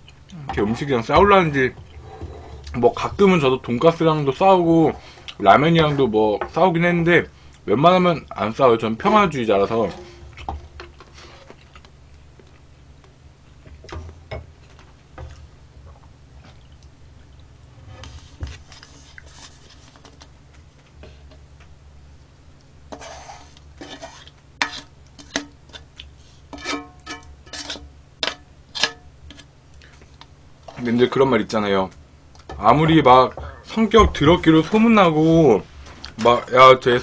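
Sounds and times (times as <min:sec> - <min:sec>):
wooden spoon scraping metal pan: 0:09.5 - 0:11.5, 0:17.8 - 0:20.1, 0:22.9 - 0:25.5, 0:26.2 - 0:29.5.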